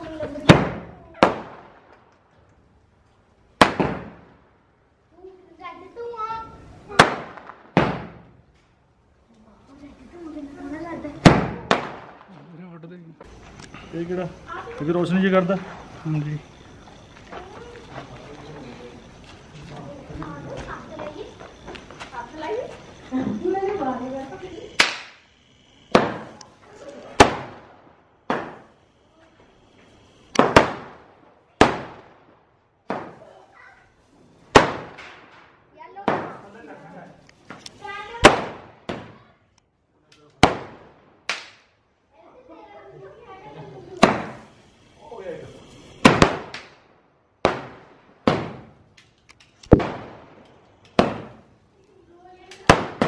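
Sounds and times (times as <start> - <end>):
firework bangs echoing: 0.1 - 2.1, 3.6 - 4.6, 6.9 - 8.5, 11.0 - 12.6, 20.6 - 25.3, 25.9 - 28.8, 29.4 - 36.8, 37.5 - 39.4, 40.4 - 41.8, 43.7 - 51.6, 52.2 - 53.0.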